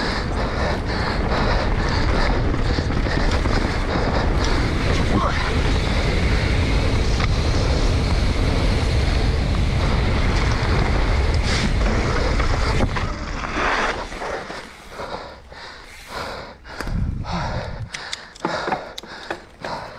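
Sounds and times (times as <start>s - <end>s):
wind buffeting microphone: 0.0s - 13.5s, 16.6s - 19.9s
bike tyres rumbling on dirt: 0.0s - 17.6s, 18.5s - 19.9s
sharp clicks: 17.8s - 19.6s.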